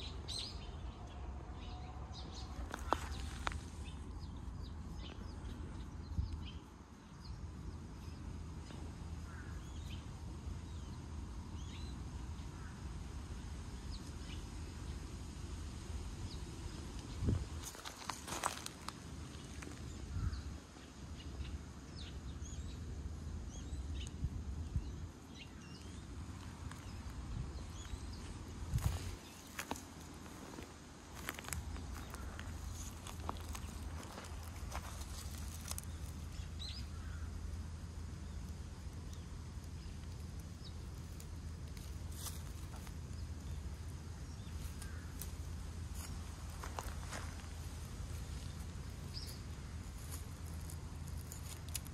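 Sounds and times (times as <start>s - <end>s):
low steady rumble: 0.0s - 51.9s
small birds chirping: 0.0s - 51.9s
dry leaves crackling under paws: 2.4s - 4.1s, 17.6s - 19.9s, 27.9s - 37.2s, 39.8s - 51.9s.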